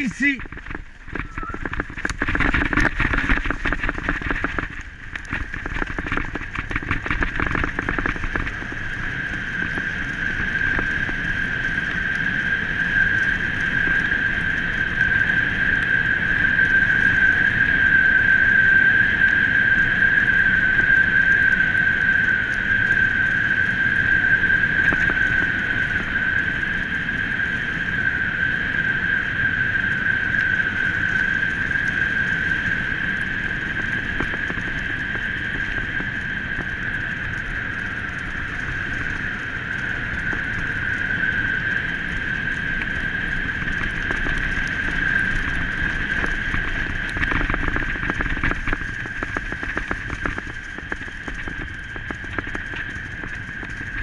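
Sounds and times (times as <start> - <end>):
wheels rumbling on dirt trail: 0.0 - 54.0
high-pitched brake squeal: 1.2 - 1.7.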